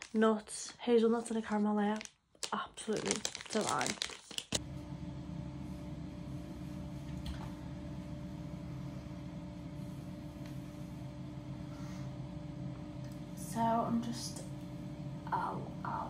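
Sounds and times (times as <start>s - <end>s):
low mechanical hum: 4.5s - 16.0s.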